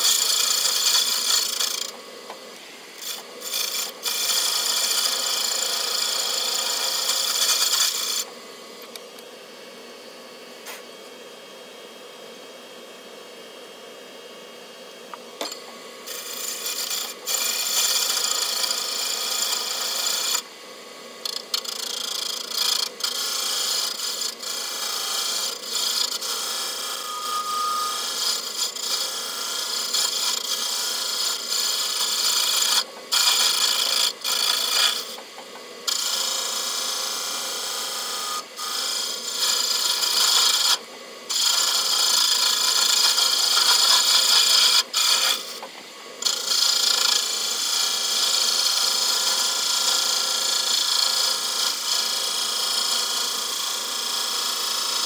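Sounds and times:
lathe tool cutting metal: 0.0s - 9.0s, 15.4s - 55.0s.

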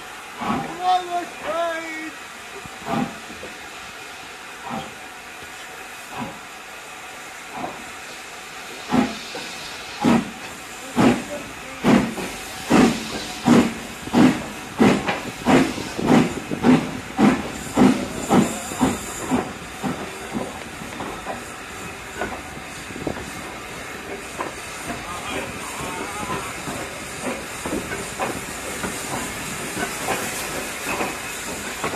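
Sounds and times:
steam hissing: 0.0s - 31.9s
steam locomotive exhaust beats: 0.0s - 31.9s.

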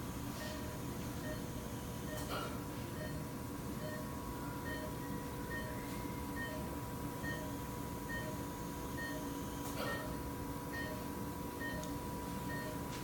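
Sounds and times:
equipment hum: 0.0s - 13.0s
monitor beeping: 2.9s - 13.0s.

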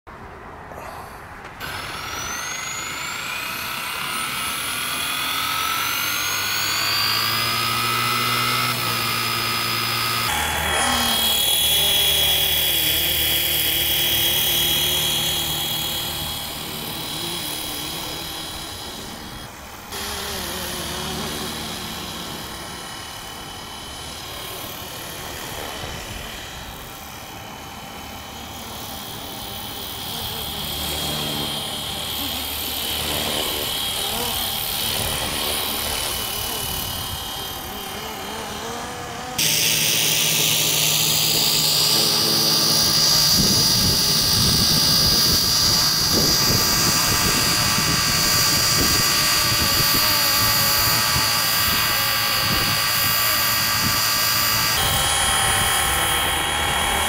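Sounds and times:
rc helicopter rotor whine: 0.1s - 57.0s.

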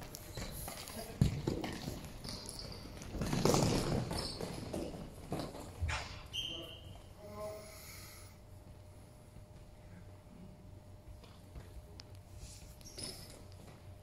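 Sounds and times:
players' footsteps: 0.0s - 6.1s
referee's whistle: 6.3s - 7.0s.

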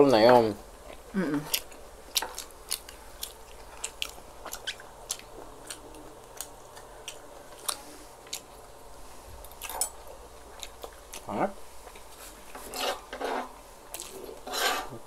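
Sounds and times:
chewing and wet mouth sounds: 0.8s - 8.8s, 9.4s - 12.5s.

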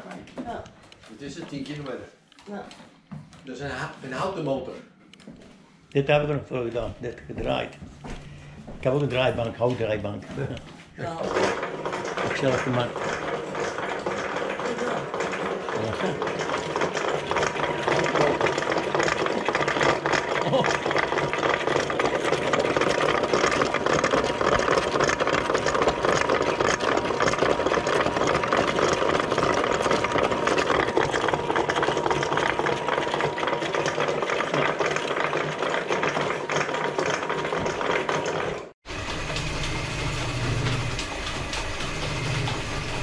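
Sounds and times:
machine clattering: 8.9s - 43.0s.

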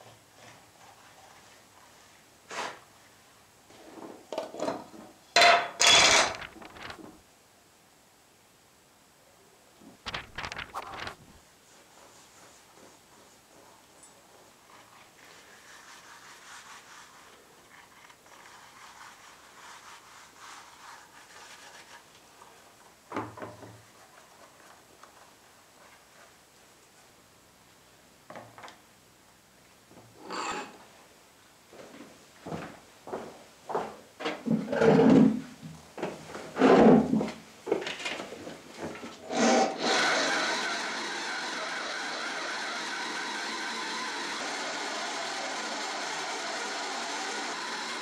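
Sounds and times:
metallic scrapes and clicks: 5.8s - 7.0s
scratchy rubbing on leather: 10.7s - 22.1s.

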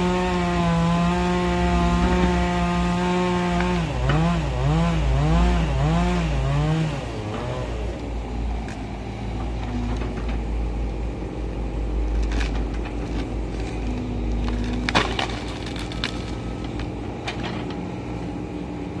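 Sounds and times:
excavator diesel engine running: 1.1s - 5.6s, 7.2s - 19.0s
wood cracking and splintering: 12.0s - 17.8s.

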